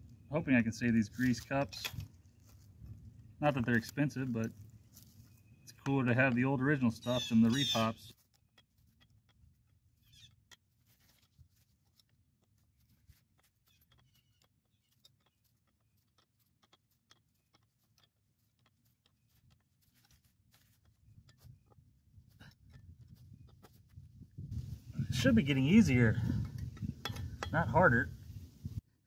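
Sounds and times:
faint ticks and rustles: 8.0s - 24.3s.

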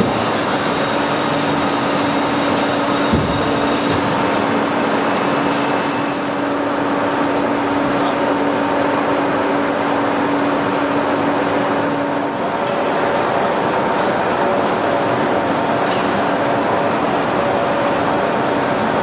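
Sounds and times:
milling machine whir and hiss: 0.0s - 19.0s.

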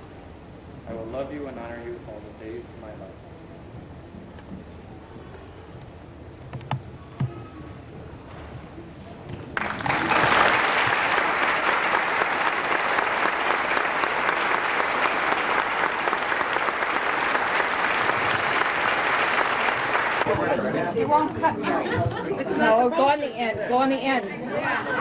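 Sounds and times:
congregation applauding: 9.6s - 20.4s.

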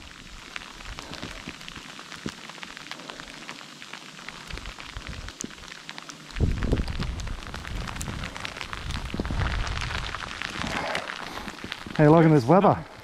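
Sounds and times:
snow pattering on leaves: 0.0s - 13.0s
low rumble: 6.4s - 12.1s.

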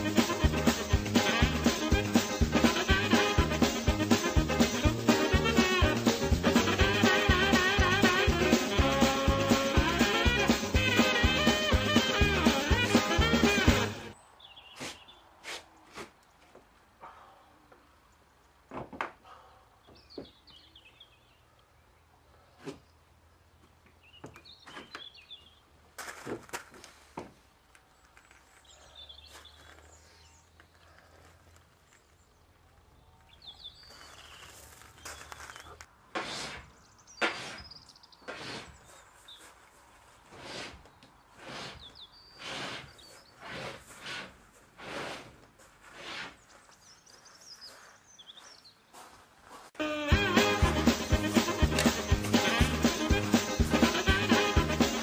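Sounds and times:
birds chirping: 6.9s - 18.6s, 19.4s - 25.7s, 27.6s - 35.9s, 36.7s - 39.5s, 40.8s - 43.8s, 46.3s - 49.2s
platform scraping across plywood: 36.2s - 37.7s, 38.3s - 38.8s, 40.3s - 46.4s.

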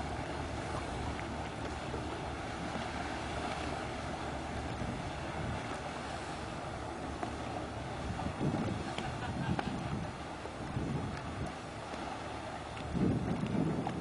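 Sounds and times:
motorboat engine running: 0.0s - 14.0s
wind noise on microphone: 7.9s - 11.6s, 12.8s - 14.0s.

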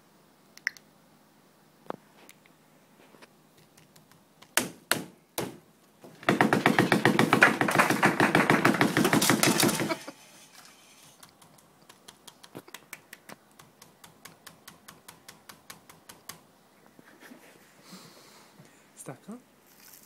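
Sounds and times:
sharp knocks: 4.6s - 10.0s
partition panel rattling: 6.1s - 10.0s.

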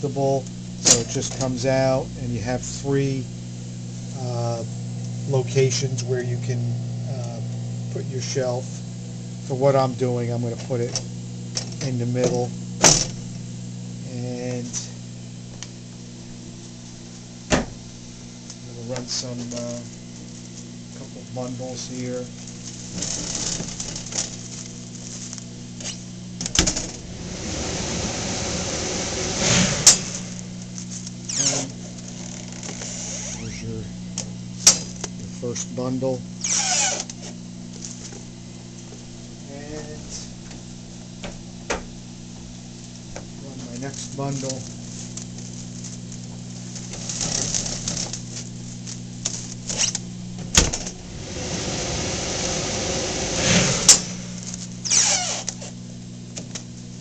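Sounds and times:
fan hum: 0.0s - 57.0s
plastic film rustling: 22.4s - 26.0s, 43.6s - 50.1s, 54.2s - 55.8s
hot air rushing: 26.7s - 31.0s, 50.9s - 54.8s
hood closing clack: 50.5s - 54.6s.

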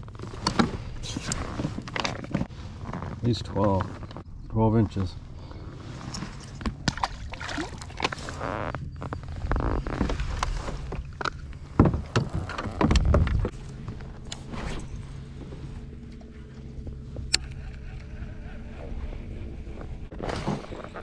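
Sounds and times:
steady low hum: 0.0s - 21.0s
gear clattering on kayak hull: 0.2s - 2.5s, 10.0s - 14.0s.

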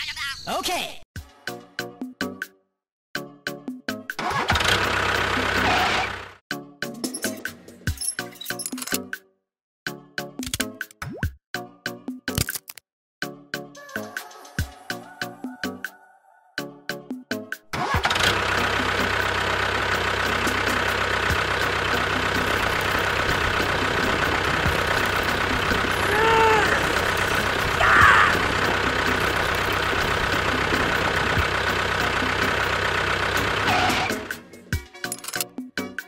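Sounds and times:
engine idling: 4.3s - 6.4s, 18.0s - 34.9s.

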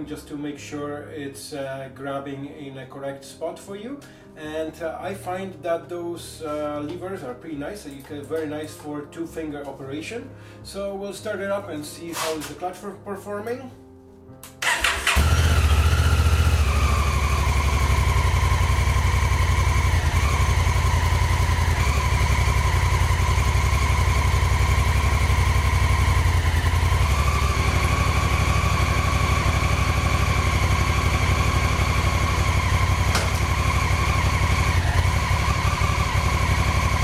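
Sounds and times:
motorcycle engine cranking: 14.6s - 37.0s
motorcycle engine idling: 14.6s - 37.0s.

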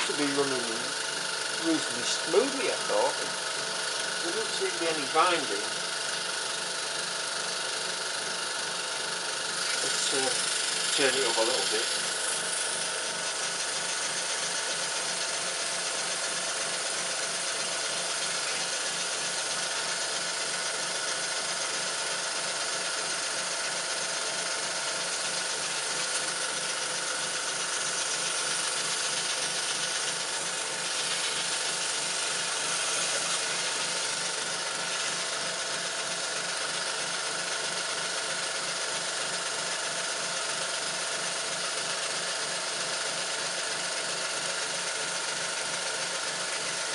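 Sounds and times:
air compressor running: 0.0s - 46.9s
model steam engine beating: 1.6s - 3.3s.

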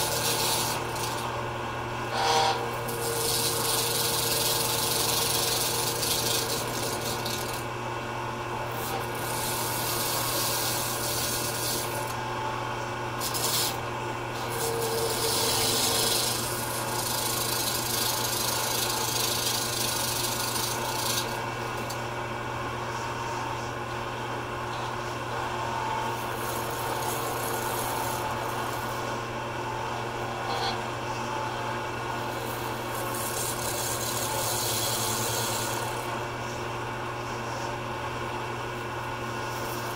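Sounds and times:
chisel shaving hiss: 0.0s - 1.4s, 2.1s - 7.7s, 8.7s - 12.5s, 13.2s - 22.0s, 25.3s - 29.3s, 29.9s - 36.6s, 39.3s - 39.9s
lathe motor hum: 0.0s - 39.9s.

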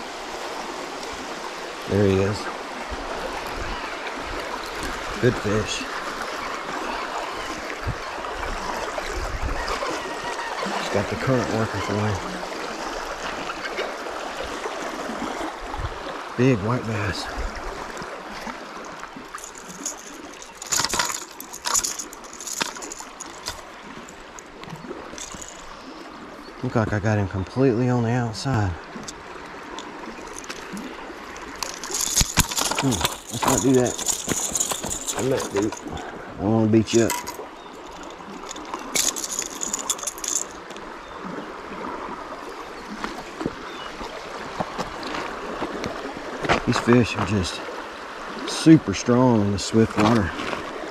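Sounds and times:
river current rushing: 0.0s - 50.9s
fish splashing in water: 17.5s - 26.5s
metallic clicks and rattles: 19.3s - 25.8s, 29.0s - 36.0s, 37.0s - 40.8s.

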